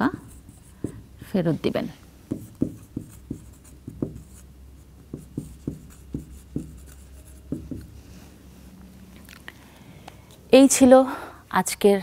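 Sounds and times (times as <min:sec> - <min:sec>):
marker pen writing on whiteboard: 0:00.0 - 0:01.4, 0:02.3 - 0:08.1.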